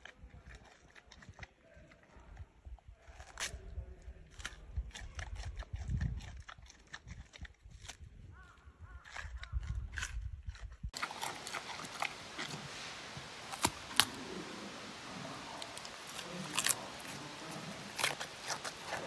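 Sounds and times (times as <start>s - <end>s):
animal chewing wetly: 0.0s - 3.5s, 4.3s - 8.0s, 9.1s - 19.0s
sharp crunches: 8.9s - 19.0s
steady hiss: 11.0s - 19.0s.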